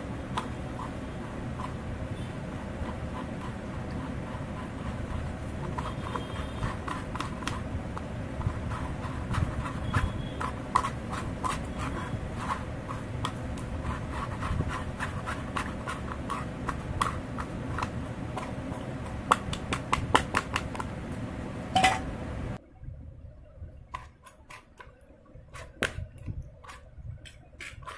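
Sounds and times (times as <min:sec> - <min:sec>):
plastic spoon scraping a strainer: 0:00.3 - 0:19.6, 0:26.6 - 0:27.9.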